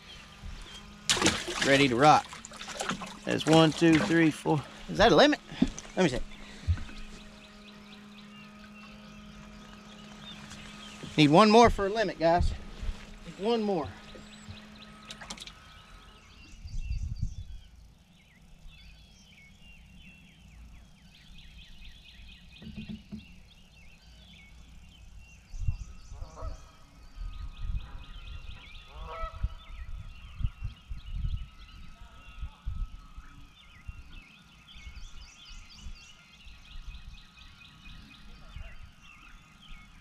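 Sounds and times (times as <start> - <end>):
dull low thumps and rumbles: 0.0 - 7.8, 9.3 - 14.9, 16.3 - 17.7, 27.2 - 34.1
lower bird calls: 0.0 - 40.0
small birds chirping: 0.0 - 40.0.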